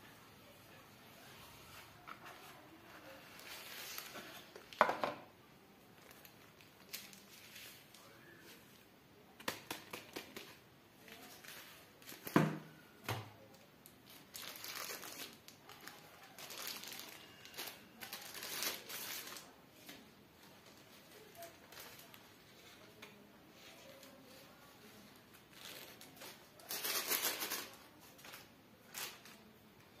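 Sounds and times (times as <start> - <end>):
paper and cardboard rustling: 1.5 - 4.8.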